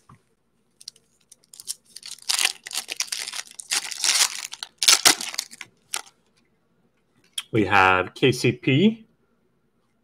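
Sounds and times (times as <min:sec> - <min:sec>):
foil wrapper crinkling and tearing: 0:00.8 - 0:06.1.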